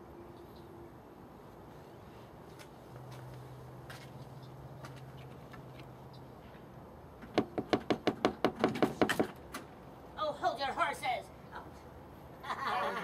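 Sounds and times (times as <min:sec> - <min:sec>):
knocking on glass door frame: 0:07.3 - 0:09.3.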